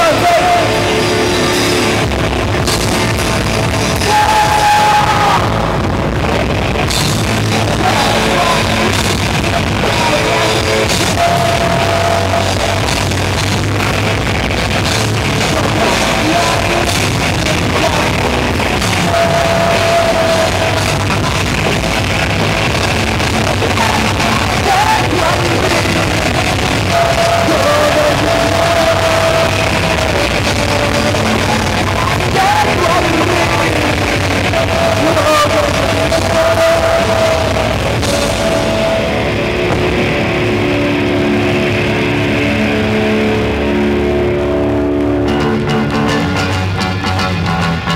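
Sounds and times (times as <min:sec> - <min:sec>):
bass guitar: 0:00.0 - 0:47.9
drums: 0:00.0 - 0:47.9
electric guitars: 0:00.0 - 0:47.9
singer holding long notes: 0:00.0 - 0:47.9.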